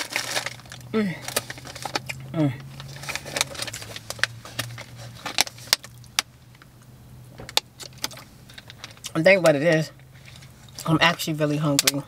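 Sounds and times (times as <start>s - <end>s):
plastic water bottle crackling: 0.0s - 6.3s
low vehicle hum: 0.0s - 12.0s.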